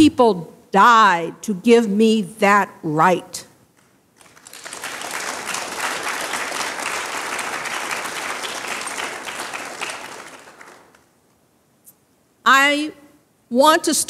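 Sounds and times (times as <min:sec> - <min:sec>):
congregation applauding: 0:03.8 - 0:11.2.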